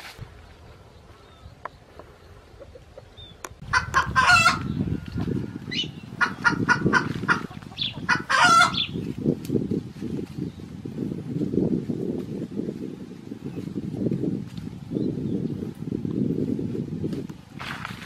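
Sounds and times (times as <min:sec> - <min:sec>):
sharp clucks: 0:01.7 - 0:04.7, 0:05.7 - 0:08.9
rooster crowing: 0:08.1 - 0:08.9.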